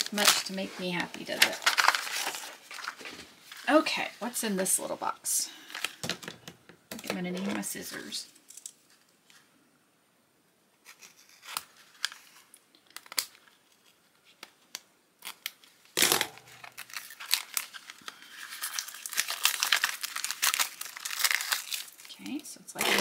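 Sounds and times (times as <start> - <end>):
paper crinkling and rustling: 0.0 - 3.8, 10.8 - 23.0
paper packaging ripping: 0.0 - 3.8, 10.8 - 14.0, 15.2 - 23.0.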